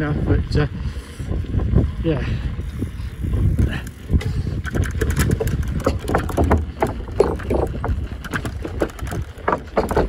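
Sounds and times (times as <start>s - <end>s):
wooden slats rattling under bicycle: 2.6s - 10.0s.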